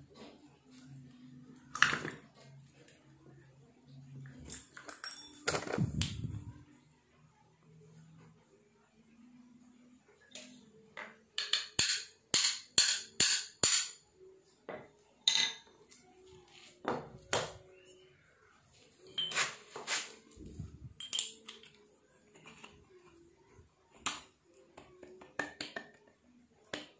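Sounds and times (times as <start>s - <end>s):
metal clinks and knocks: 4.5s - 6.1s.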